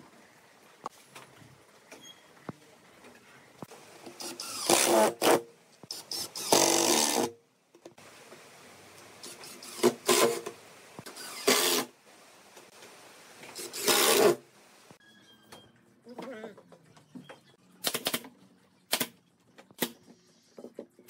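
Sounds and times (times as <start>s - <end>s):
cordless drill driving screws: 4.2s - 7.3s, 11.1s - 11.9s, 13.6s - 14.4s.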